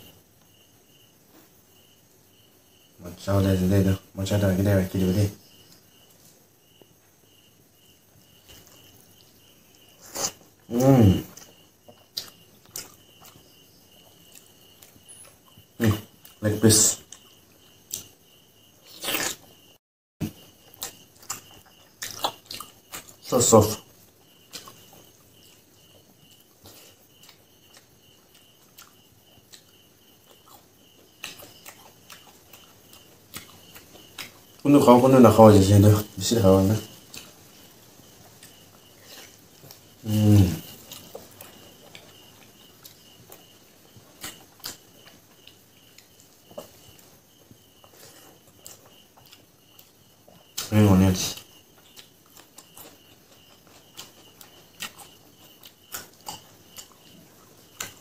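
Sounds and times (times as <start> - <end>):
crickets chirring: 0.0 - 58.0
person chewing with lip smacks: 11.3 - 13.4, 20.3 - 23.2, 26.3 - 34.6, 40.7 - 47.1, 47.8 - 50.7, 51.4 - 58.0.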